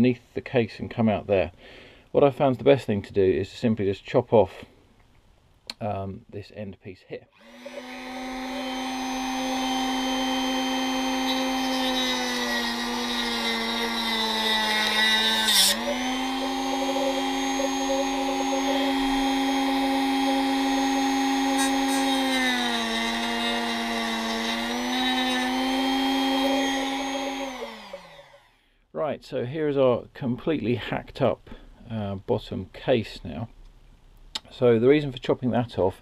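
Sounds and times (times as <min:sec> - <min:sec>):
rotary tool cutting plastic: 0:07.4 - 0:28.3
harsh grinding: 0:07.4 - 0:28.4.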